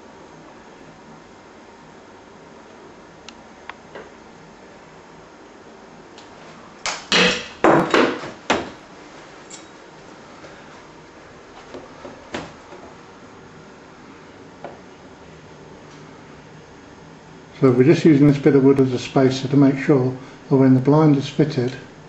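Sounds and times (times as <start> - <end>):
loud knocks and clatters: 7.1 - 8.8.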